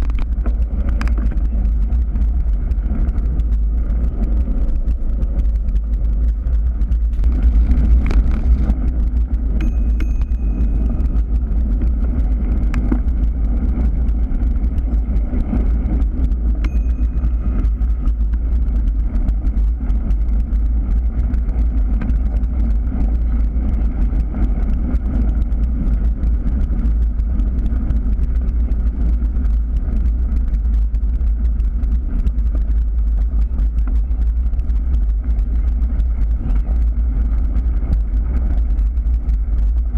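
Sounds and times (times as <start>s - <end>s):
tyres rolling over gravel: 0.0s - 9.6s
low wind rumble: 0.0s - 39.9s.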